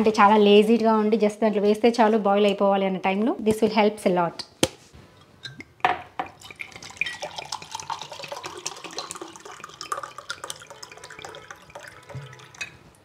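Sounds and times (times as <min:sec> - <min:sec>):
water drips: 0:05.6 - 0:13.0
water running from a tap: 0:06.4 - 0:12.7.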